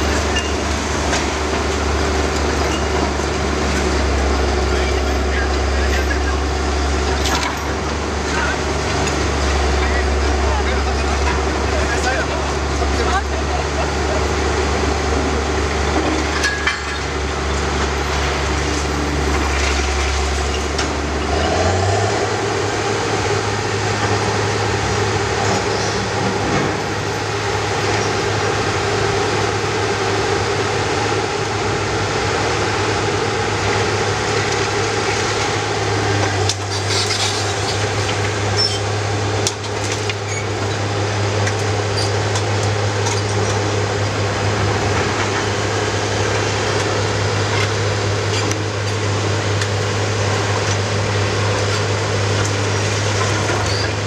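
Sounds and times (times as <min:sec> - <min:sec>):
heavy machinery diesel engines: 0:00.0 - 0:54.0.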